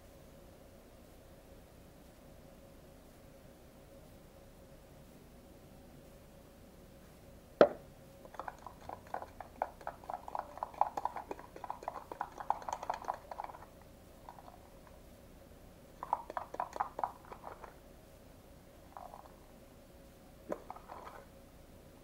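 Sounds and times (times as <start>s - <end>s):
sharp knock: 7.6s - 7.8s
stirrer scraping inside cup: 8.4s - 13.7s, 20.5s - 21.2s.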